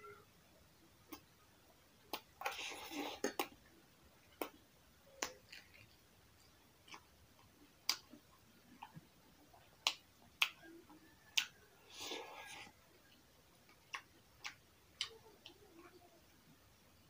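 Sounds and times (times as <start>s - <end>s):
lip smacks: 1.1s - 1.3s, 2.1s - 3.6s, 4.3s - 5.9s, 6.8s - 10.6s, 11.3s - 15.6s
chewing: 2.1s - 3.6s, 5.2s - 15.9s.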